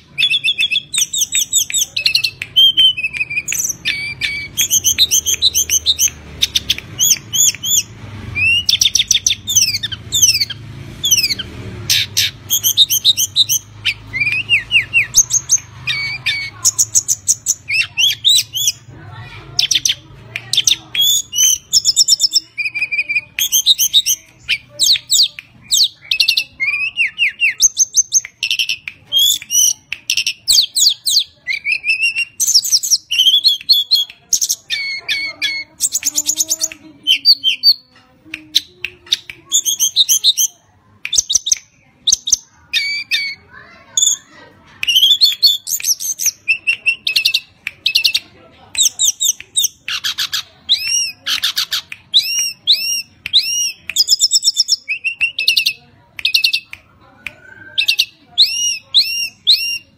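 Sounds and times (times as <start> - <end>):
songbird singing whistled phrases: 0.1 - 18.9, 19.6 - 44.2, 44.8 - 48.2, 48.8 - 59.9.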